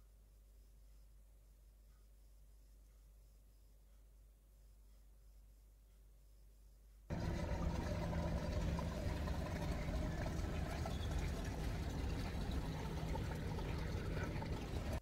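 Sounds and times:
vehicle engines rumbling: 7.1 - 15.0.

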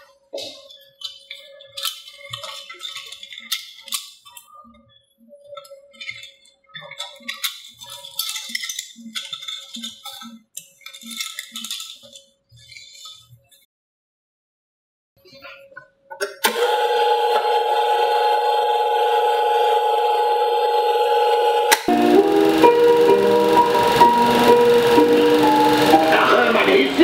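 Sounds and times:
plastic film reel rattling: 1.0 - 4.4, 5.9 - 13.2
projector hum: 16.4 - 27.0.

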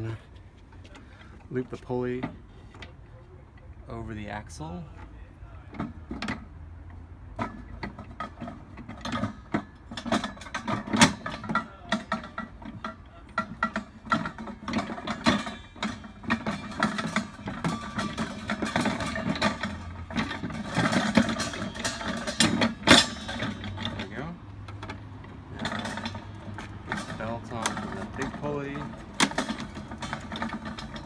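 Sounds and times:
metal gear clicks and rattles: 10.0 - 31.0.

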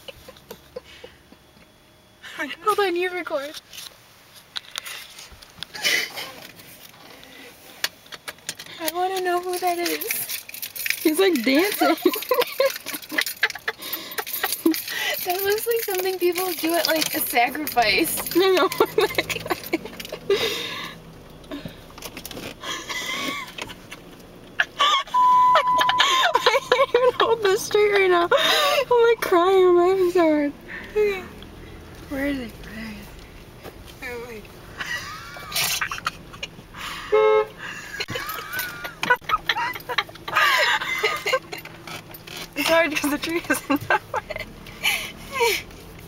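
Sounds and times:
people laughing with high squeals: 0.0 - 1.7, 11.8 - 14.9, 18.5 - 20.9, 22.6 - 28.9, 34.8 - 41.8
car horn honk: 25.1 - 26.3, 37.0 - 37.6.

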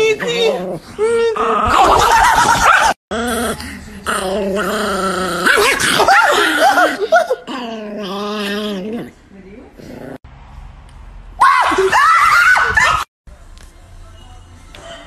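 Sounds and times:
small dog growling and snarling: 2.8 - 10.2.

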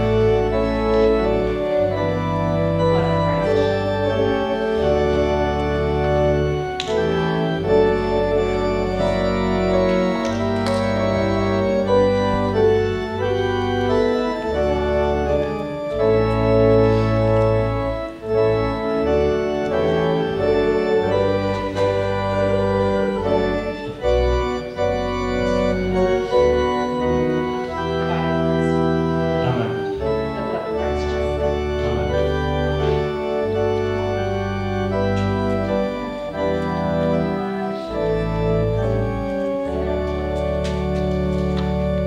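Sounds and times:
church organ playing chords: 0.0 - 42.0.

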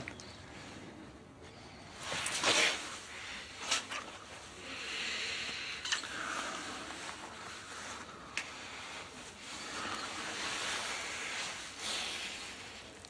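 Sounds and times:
close breathing: 4.4 - 13.0
clothing rustling: 6.8 - 13.0.

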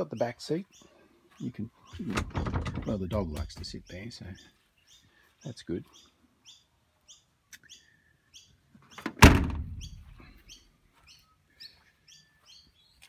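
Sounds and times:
small bird chirping: 0.0 - 2.1, 2.8 - 9.1, 9.7 - 13.0
car rear door slamming: 9.1 - 9.8.

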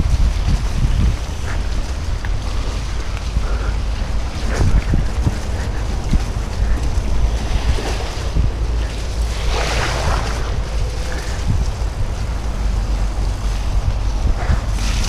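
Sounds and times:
bike tyres rumbling on dirt: 0.0 - 15.0
wind buffeting microphone: 0.0 - 15.0.

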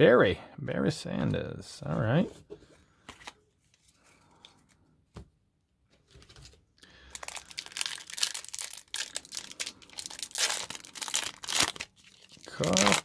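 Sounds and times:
foil wrapper crinkling and tearing: 6.8 - 13.0.

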